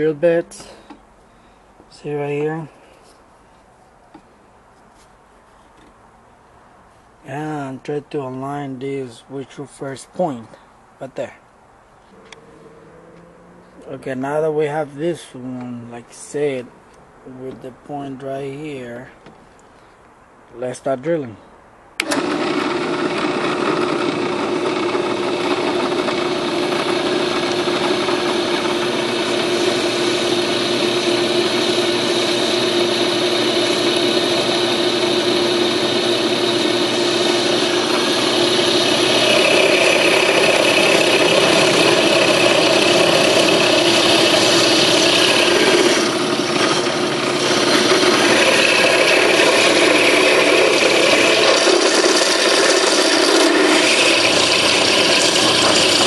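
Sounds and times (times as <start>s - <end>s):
drill bit grinding metal: 22.0s - 56.0s
drill press motor hum: 22.0s - 56.0s.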